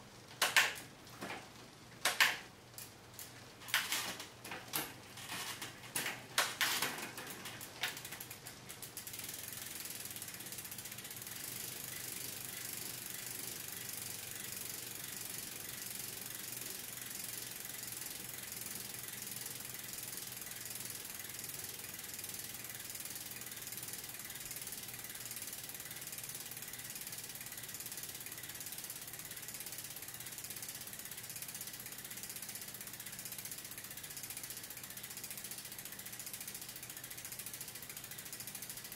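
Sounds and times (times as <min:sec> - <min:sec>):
sharp clicks: 0:00.4 - 0:00.9, 0:02.0 - 0:02.4
bicycle freehub buzzing: 0:02.0 - 0:38.9.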